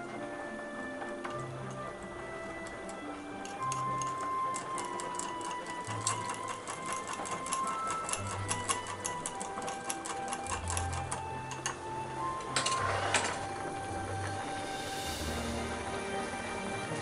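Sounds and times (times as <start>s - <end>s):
background music with held notes: 0.0s - 17.0s
metal whisk rattling in ceramic bowl: 3.4s - 11.8s.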